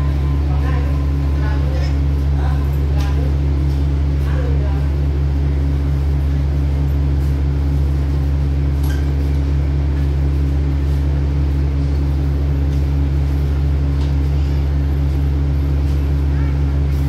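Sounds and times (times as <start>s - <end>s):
diesel train engine idling: 0.0s - 17.0s.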